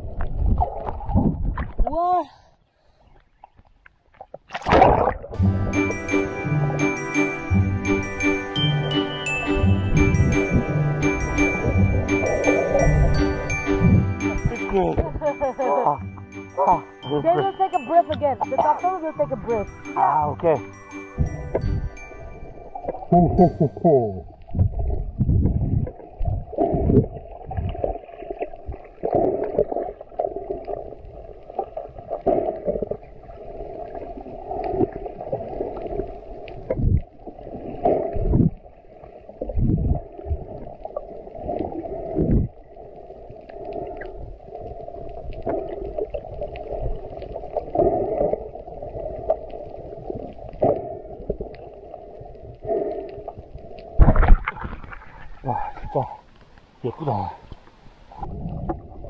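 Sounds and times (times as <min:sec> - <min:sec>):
dull underwater thumps and swishes: 0:00.0 - 0:01.9, 0:03.4 - 0:06.8, 0:09.5 - 0:15.2, 0:21.2 - 0:22.1, 0:24.4 - 0:30.9, 0:34.6 - 0:38.7, 0:39.4 - 0:42.6, 0:54.0 - 0:55.9, 0:58.1 - 0:59.0
muffled underwater rumble: 0:22.6 - 0:31.4, 0:32.0 - 0:56.2.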